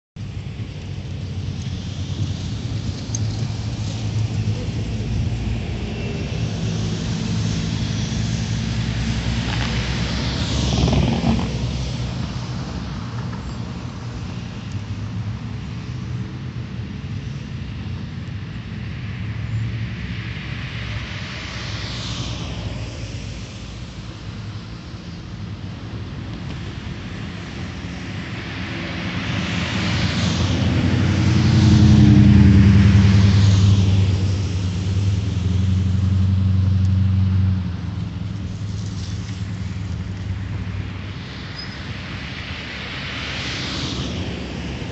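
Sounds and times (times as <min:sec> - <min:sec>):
engine and tyre hum: 0:00.2 - 0:44.9
vehicle passing: 0:27.6 - 0:41.2
car tyre hiss: 0:38.2 - 0:44.9.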